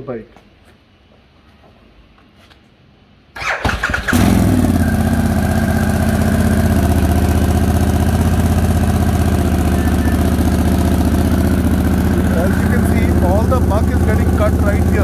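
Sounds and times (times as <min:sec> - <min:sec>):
electric starter cranking: 0:03.4 - 0:04.8
motorcycle engine idling: 0:04.1 - 0:15.0.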